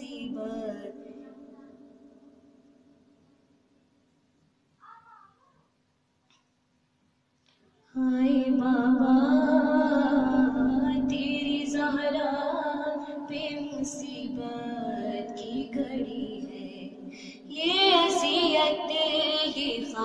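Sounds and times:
woman singing a lament: 0.0 - 1.5, 8.0 - 20.0.

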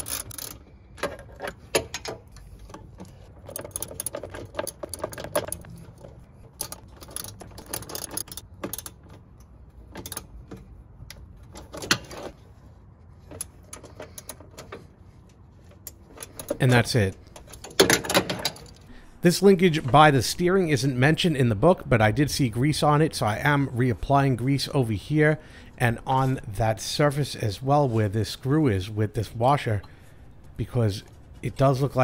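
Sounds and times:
ratchet wrench clicking: 0.0 - 0.6, 3.5 - 9.0.

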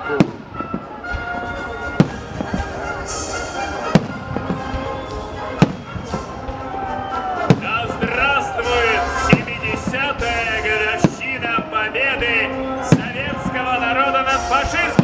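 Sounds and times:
fireworks bursting: 0.0 - 15.0
music: 0.0 - 15.0.

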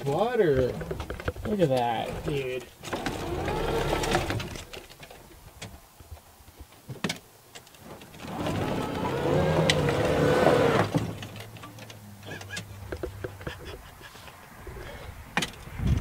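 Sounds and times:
golf cart motor whining: 2.8 - 4.7, 8.1 - 11.5
cart knocks and rattles: 7.8 - 13.6.

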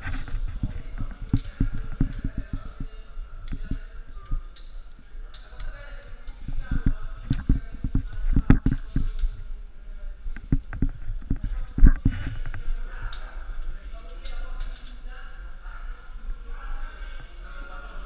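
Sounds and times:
camera rubbing against rock: 0.0 - 3.0, 10.4 - 12.7
muffled voices: 0.0 - 18.0.

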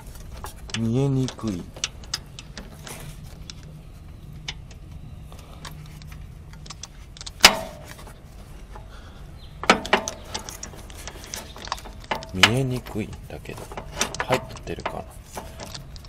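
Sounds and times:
ringing metal clank: 7.4 - 8.0.

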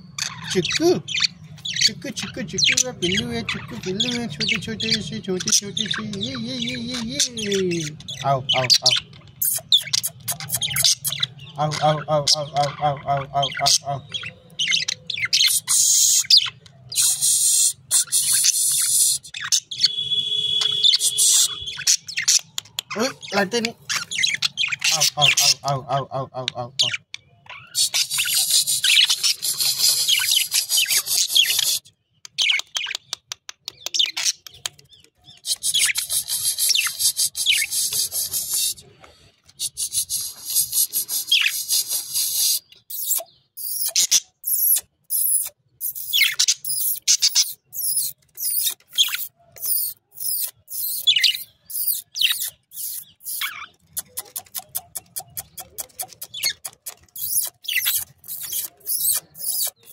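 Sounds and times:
budgerigars warbling: 0.0 - 26.2, 42.6 - 59.9
short bird chirps: 14.7 - 22.3, 27.6 - 33.1, 39.6 - 59.9
quick clicks: 53.8 - 59.8.

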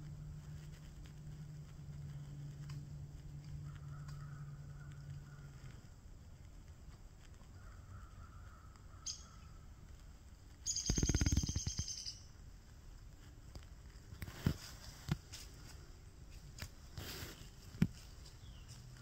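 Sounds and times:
animal rapid chattering call: 10.6 - 12.3.

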